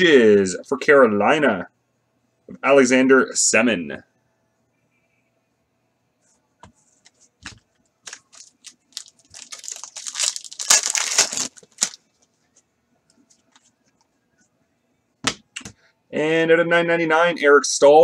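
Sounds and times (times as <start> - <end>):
shiny wrapper tearing open: 8.1 - 12.0.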